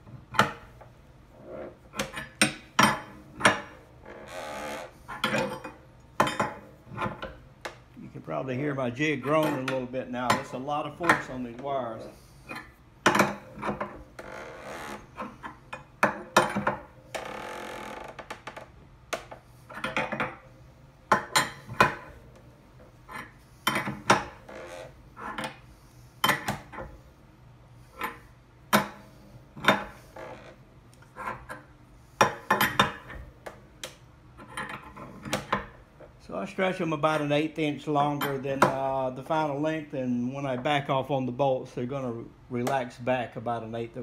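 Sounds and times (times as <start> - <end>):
wooden jig groaning: 0.1 - 5.7, 11.1 - 18.8, 21.7 - 25.7.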